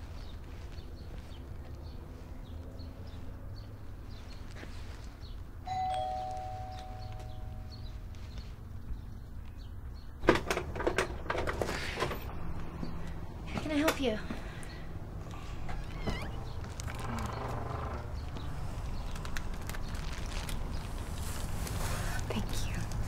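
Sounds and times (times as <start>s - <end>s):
two-note doorbell chime: 5.7s - 7.8s.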